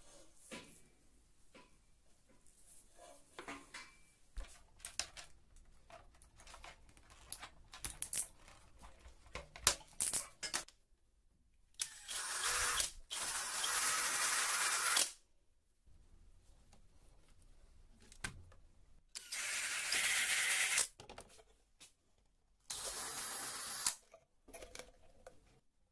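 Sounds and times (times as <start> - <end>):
cordless drill running: 11.8 - 15.1, 19.2 - 20.9, 22.7 - 24.0.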